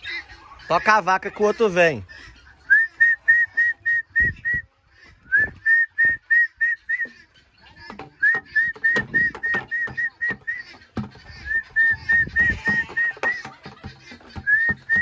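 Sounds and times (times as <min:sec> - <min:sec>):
person whistling short notes: 0:02.7 - 0:04.7, 0:05.3 - 0:07.1, 0:08.2 - 0:10.6, 0:14.4 - 0:15.0.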